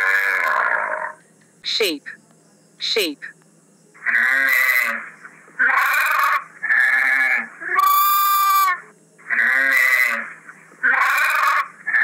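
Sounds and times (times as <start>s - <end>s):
sheep bleating: 5.6s - 12.0s.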